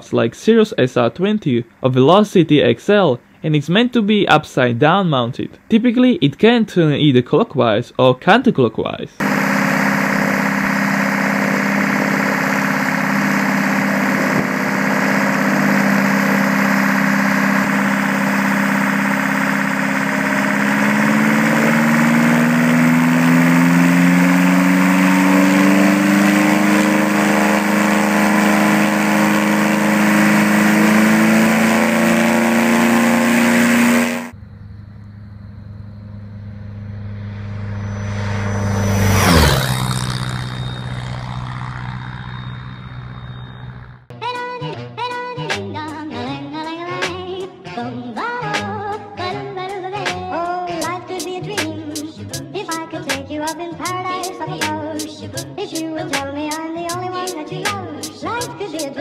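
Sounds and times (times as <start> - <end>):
aircraft diesel engine running: 9.2 - 44.1
propeller plane flying past: 9.2 - 44.1.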